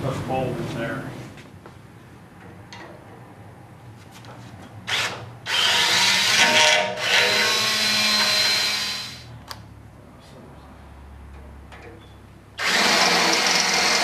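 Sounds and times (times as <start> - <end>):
cordless drill boring: 4.9 - 9.2, 12.6 - 14.0.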